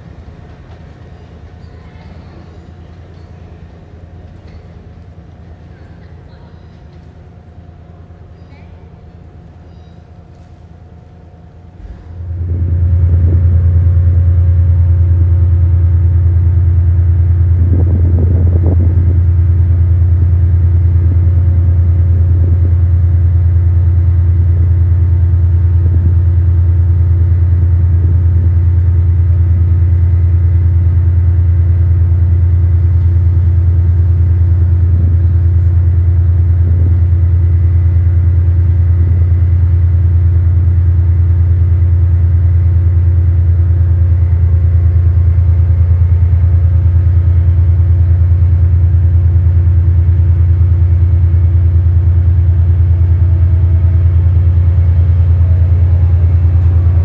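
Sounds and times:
loud low engine drone: 0.0 - 57.0.

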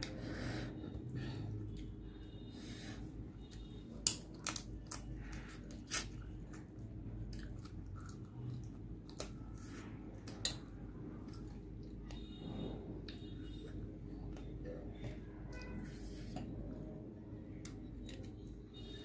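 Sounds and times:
close chewing with crunches: 3.4 - 12.4.

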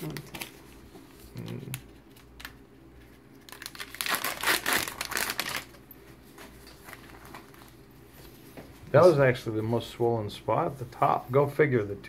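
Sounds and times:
underpads crinkling and rustling: 3.5 - 8.8.

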